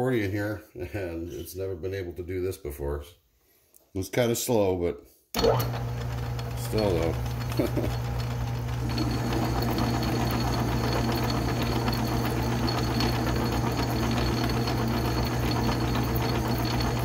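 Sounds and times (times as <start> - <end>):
crackle of metal cutting: 5.4 - 17.0
metal lathe humming: 5.4 - 17.0.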